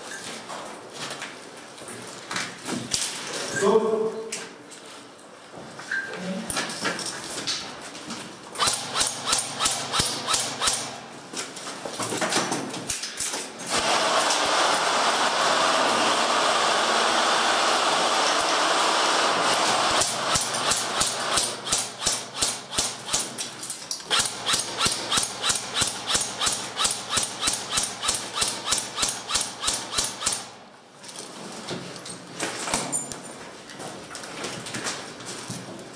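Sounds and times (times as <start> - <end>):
airsoft rifle shots: 8.6 - 11.0, 18.3 - 23.4, 24.1 - 30.6.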